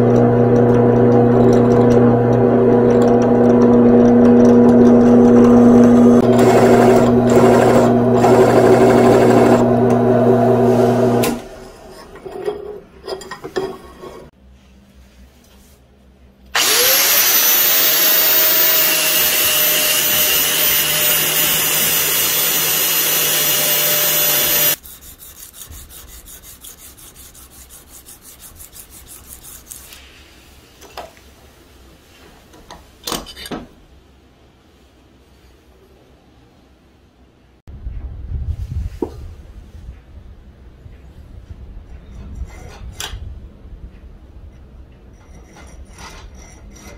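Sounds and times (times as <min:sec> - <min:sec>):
drill press boring steel: 0:00.0 - 0:11.4, 0:16.6 - 0:24.8
angle grinder grinding metal: 0:00.0 - 0:12.4, 0:16.6 - 0:25.7
faint rhythmic rubbing: 0:24.8 - 0:30.6.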